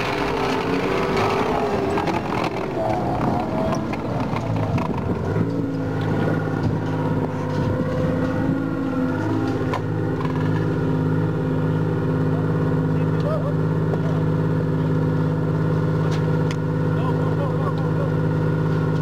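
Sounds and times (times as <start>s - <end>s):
tracks clattering: 0.0s - 11.0s
armoured vehicle engine running: 0.0s - 19.0s.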